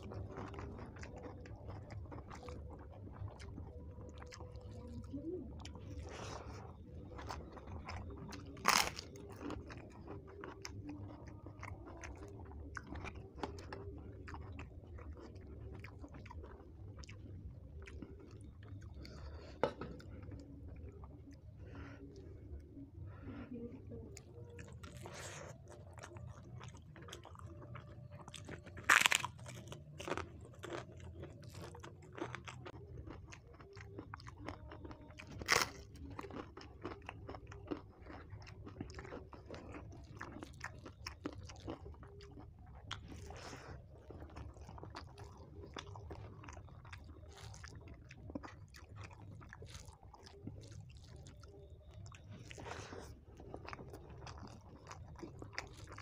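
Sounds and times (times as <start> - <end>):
person chewing with wet clicks: 0.0 - 22.8, 24.1 - 56.0
sharp crunches of crisp food: 8.6 - 9.6, 28.7 - 30.9.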